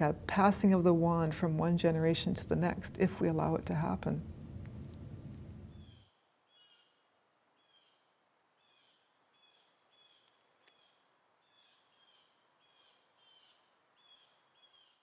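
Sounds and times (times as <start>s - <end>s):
quiet background hiss: 0.0s - 15.0s
faint high bird chirps: 5.7s - 7.0s, 8.6s - 15.0s.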